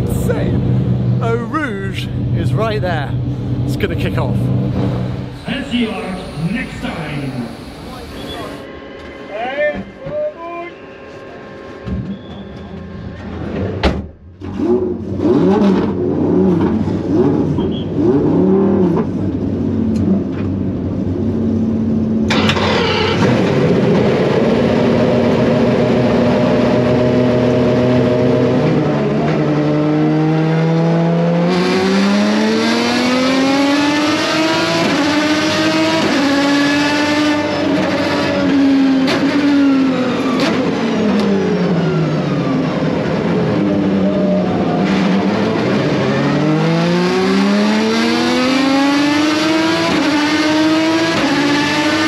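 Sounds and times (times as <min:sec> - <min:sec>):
race car engine revving: 0:00.0 - 0:08.7, 0:14.4 - 0:21.3, 0:22.2 - 0:52.0.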